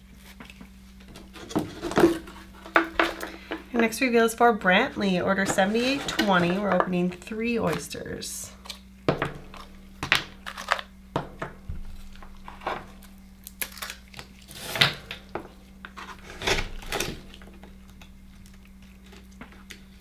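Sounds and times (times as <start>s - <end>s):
knife scraping shell: 5.0s - 7.9s, 14.2s - 18.1s.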